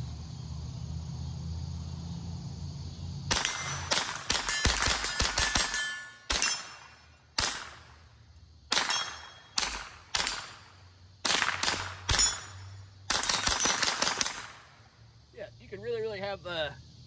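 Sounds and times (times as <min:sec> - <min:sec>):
rifle shots: 0:03.3 - 0:08.0, 0:08.7 - 0:14.8.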